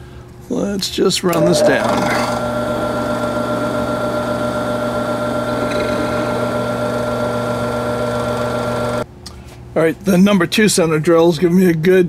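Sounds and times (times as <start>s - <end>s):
drill press humming: 1.3s - 9.0s.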